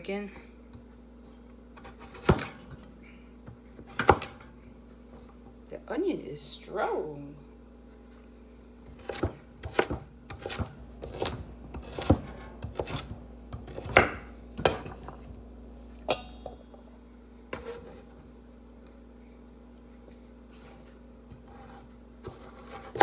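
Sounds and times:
knife chopping on wooden board: 1.8 - 2.6, 8.9 - 14.9.

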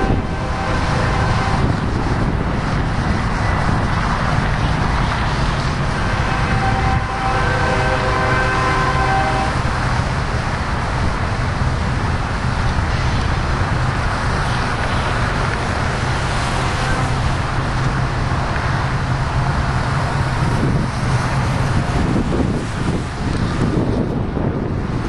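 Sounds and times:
train horn chord: 0.0 - 1.9, 5.9 - 9.7, 16.2 - 17.4
freight train rumbling: 0.0 - 25.0
highway traffic: 0.0 - 25.0.

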